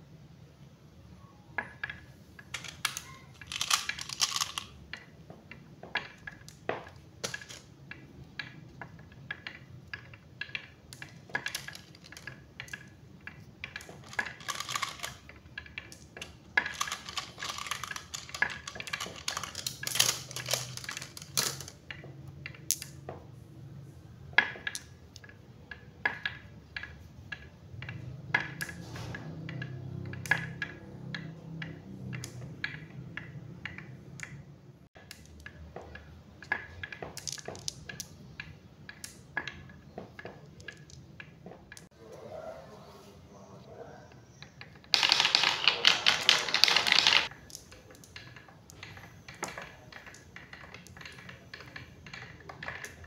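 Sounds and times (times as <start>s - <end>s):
marbles clicking together: 1.6s - 23.0s, 24.4s - 28.8s, 29.4s - 41.9s, 44.5s - 53.0s
marbles rattling down wooden track: 1.9s - 5.1s, 5.9s - 21.8s, 36.4s - 38.2s, 44.8s - 53.0s.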